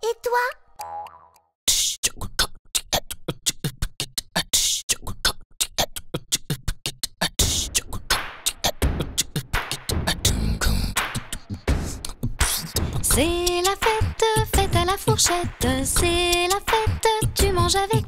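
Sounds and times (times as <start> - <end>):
sharp percussive clicks: 7.4 - 10.2.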